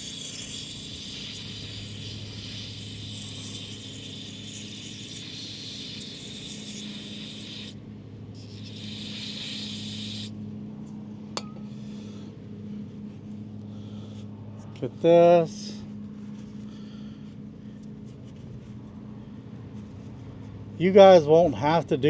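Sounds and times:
aerosol can spraying: 0.0s - 7.8s, 8.4s - 10.3s.

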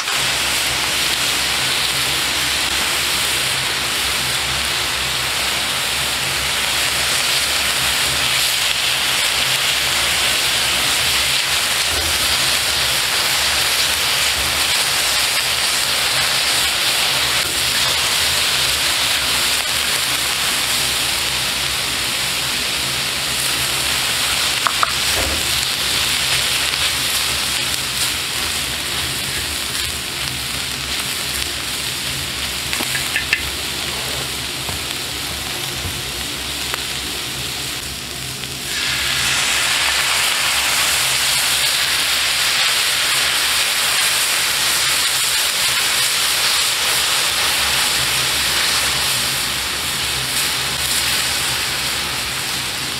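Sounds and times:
meat sizzling on a griddle pan: 0.0s - 52.9s
chopsticks clicking against pan: 24.6s - 25.0s, 32.8s - 33.5s.

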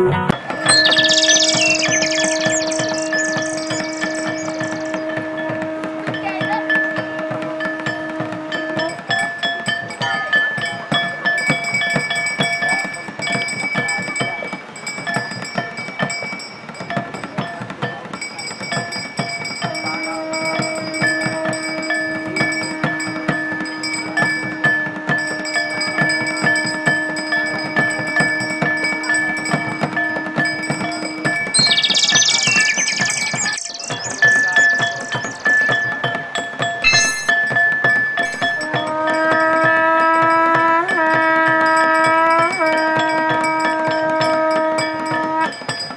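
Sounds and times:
fast drum beats: 0.0s - 5.1s, 31.6s - 36.1s, 38.2s - 38.8s.

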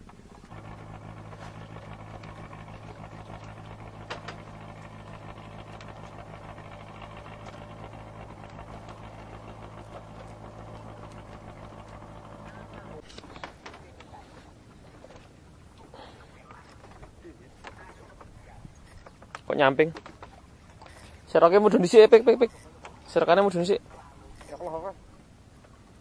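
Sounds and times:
boat motor humming: 0.0s - 26.0s.

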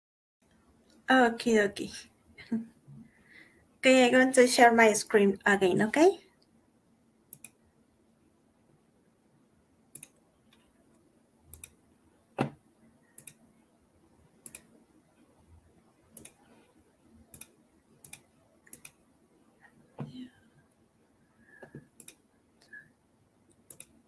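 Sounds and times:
computer mouse clicking: 7.3s - 7.6s, 9.9s - 10.7s, 11.5s - 11.8s, 13.2s - 13.4s, 14.4s - 14.7s, 16.2s - 16.5s, 17.3s - 19.0s, 21.6s - 22.2s, 23.5s - 24.0s.

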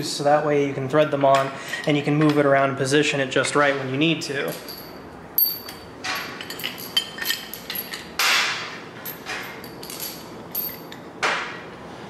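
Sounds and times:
metal parts clanking: 4.4s - 11.0s.

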